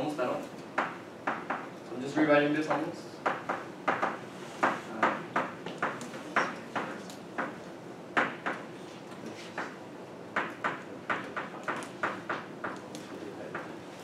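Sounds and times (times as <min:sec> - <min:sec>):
chalk tapping and scratching: 0:02.7 - 0:07.6.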